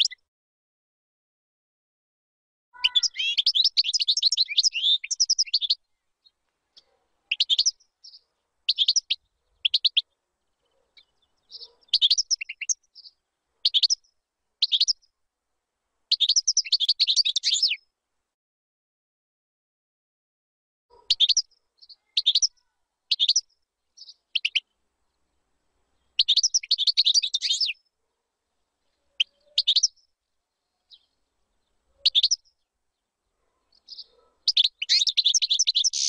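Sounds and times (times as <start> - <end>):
goldfinch twittering song: 2.8 - 10.2, 11.0 - 15.0, 16.1 - 17.8, 21.0 - 24.7, 26.1 - 27.8, 29.2 - 30.1, 32.0 - 32.6, 33.7 - 36.0.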